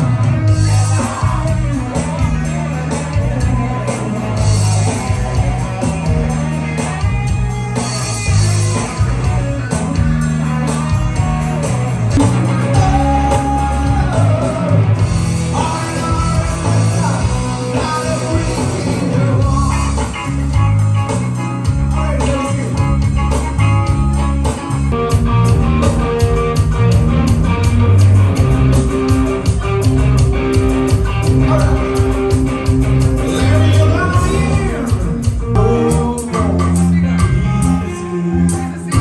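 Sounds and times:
man singing: 0.0s - 6.9s, 9.9s - 20.7s, 21.6s - 23.5s, 31.2s - 32.4s, 33.1s - 39.0s
live rock band: 0.0s - 39.0s.

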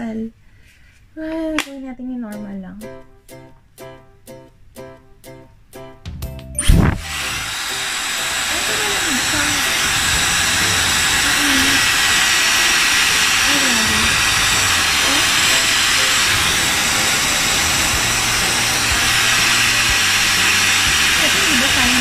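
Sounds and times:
hair dryer running: 6.6s - 22.0s.

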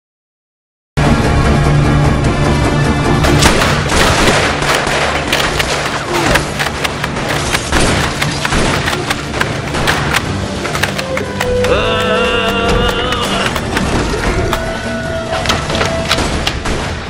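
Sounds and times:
loud cracks and bangs: 3.1s - 11.5s, 12.6s - 17.0s.

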